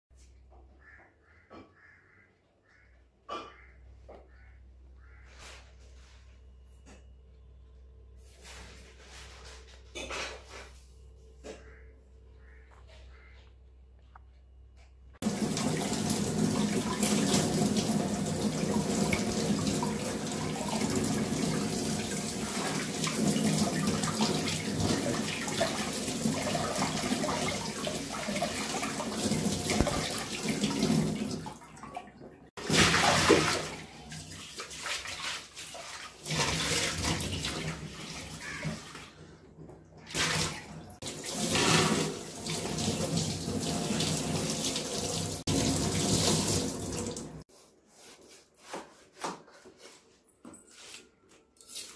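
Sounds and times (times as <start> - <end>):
water splashing: 15.2 - 39.0.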